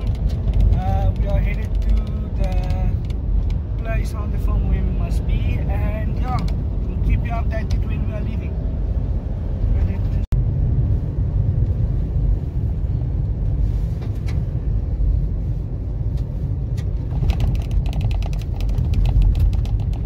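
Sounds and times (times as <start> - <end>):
fast rattling clicks: 0.0 - 3.9, 16.8 - 20.0
vehicle driving on gravel: 0.0 - 8.6, 9.6 - 20.0.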